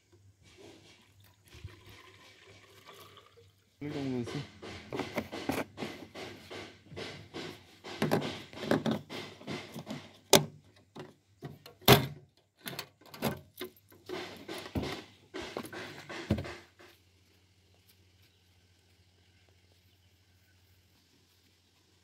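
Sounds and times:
sharp knocks: 3.8 - 10.6, 14.1 - 16.9
plastic jerry can clattering: 3.9 - 16.8.

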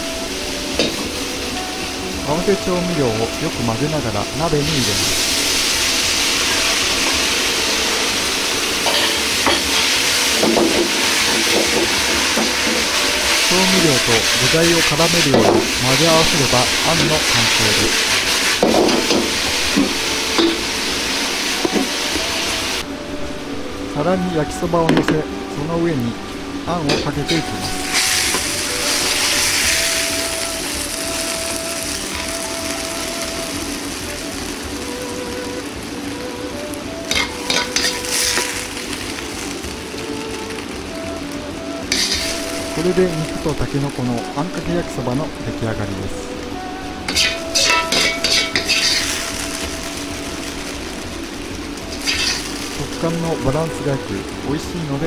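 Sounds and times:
sauce sizzling in a hot wok: 0.0 - 23.8, 24.9 - 55.0
kitchen background hiss: 0.0 - 55.0
metal ladle scraping a wok: 8.7 - 13.5, 37.1 - 38.6, 41.9 - 42.4, 47.1 - 49.5, 51.9 - 52.7.

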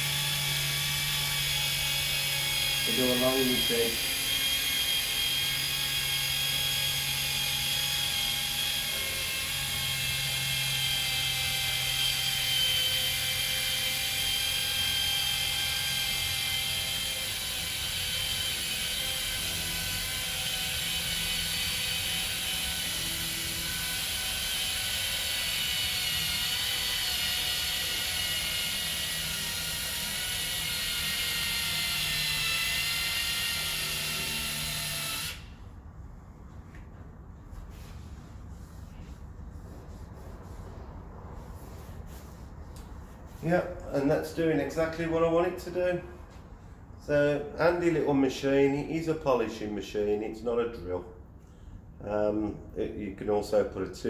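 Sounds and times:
polisher whining: 0.0 - 35.5.

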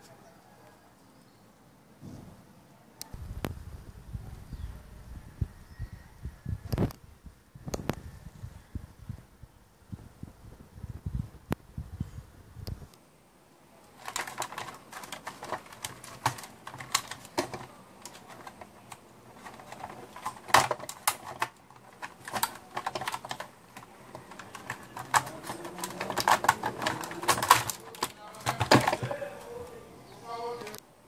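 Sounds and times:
plastic connector clicks and rattles: 14.0 - 29.2.

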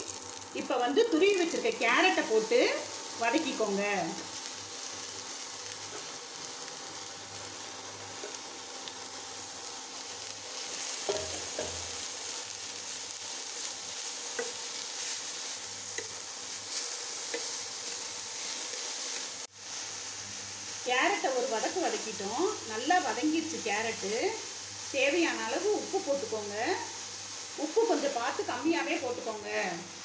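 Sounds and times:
carrot sizzling in hot oil: 0.0 - 30.0
spatula scraping and clicking on pan: 14.3 - 18.0.

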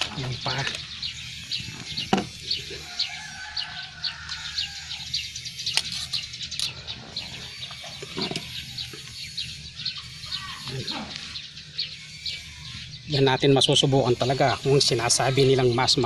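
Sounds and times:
small birds chirping: 0.0 - 16.0
bird long held call: 6.6 - 13.0.

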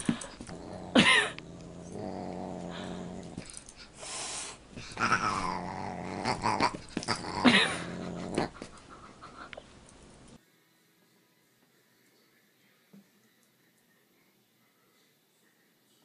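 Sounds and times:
pets growling low: 0.0 - 3.9, 4.8 - 9.3.

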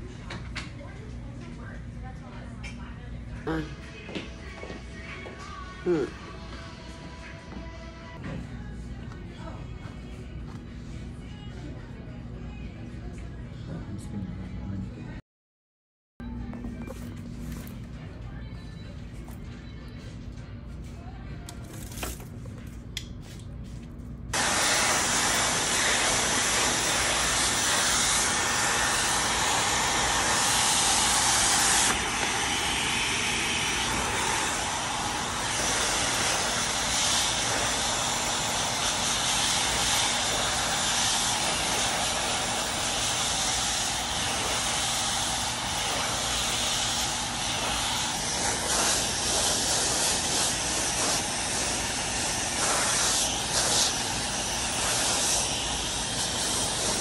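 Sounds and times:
hair dryer blowing: 24.3 - 57.0.

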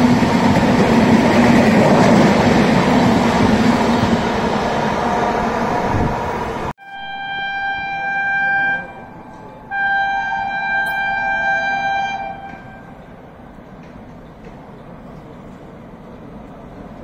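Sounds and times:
train horn blasts: 6.8 - 13.1.

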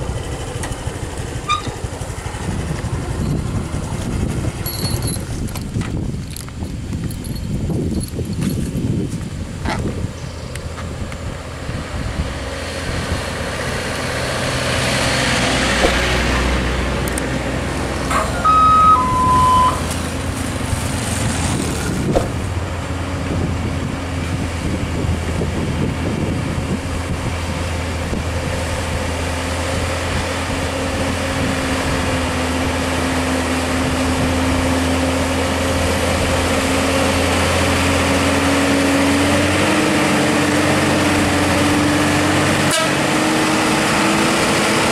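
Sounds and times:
smaller truck passing: 0.0 - 6.2, 8.6 - 44.9
dump truck diesel engine labouring: 0.0 - 44.9
two-note horn beep: 18.1 - 19.9.

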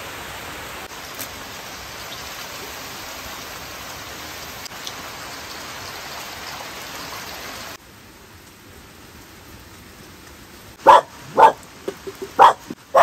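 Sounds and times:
steady rain hiss: 0.0 - 13.0
raindrops ticking: 8.1 - 13.0.

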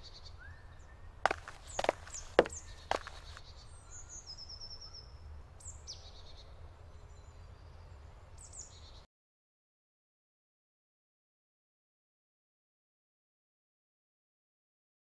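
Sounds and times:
small birds calling: 0.1 - 6.4.

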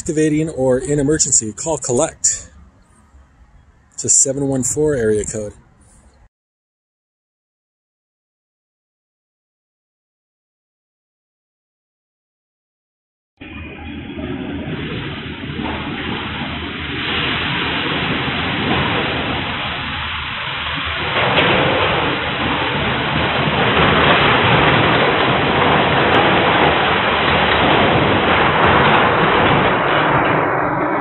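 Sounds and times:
freight train derailing: 0.0 - 6.2, 13.4 - 31.0.

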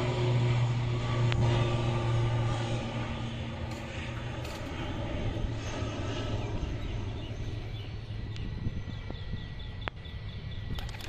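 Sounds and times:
distant turboprop plane taking off: 0.0 - 11.0
bird chirping: 6.4 - 11.0.

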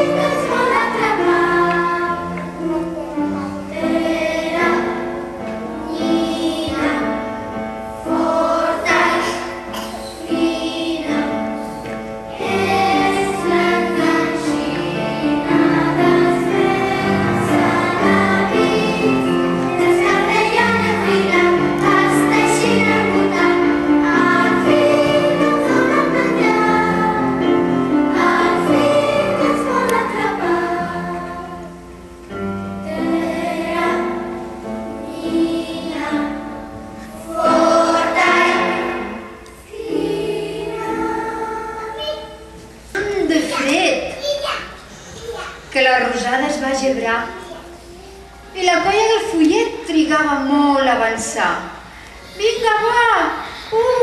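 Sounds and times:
choir singing: 0.0 - 42.5
keyboard accompaniment: 0.0 - 43.2.

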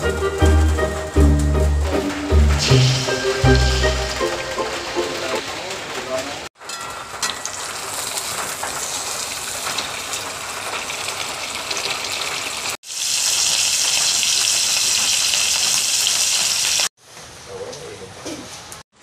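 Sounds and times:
egg sizzling in frying pan: 6.6 - 16.9
fish frying in oil: 7.1 - 16.9.

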